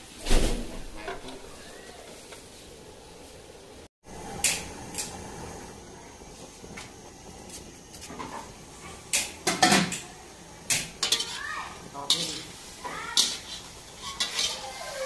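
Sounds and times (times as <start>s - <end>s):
metal spatula scraping a wok: 0.8s - 1.6s, 10.7s - 15.0s.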